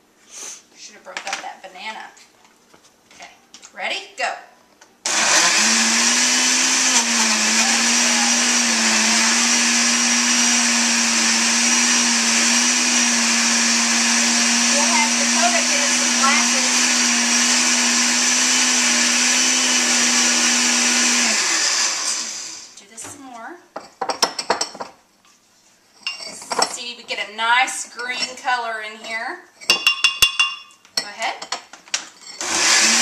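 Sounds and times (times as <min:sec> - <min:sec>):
blender running: 0:05.0 - 0:22.8, 0:32.4 - 0:33.0
blender motor spinning down: 0:05.1 - 0:22.8, 0:32.4 - 0:33.0.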